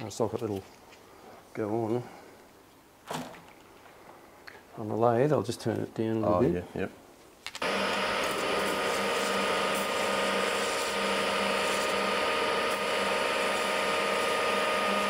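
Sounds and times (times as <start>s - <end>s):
metal lathe running: 7.6s - 15.0s.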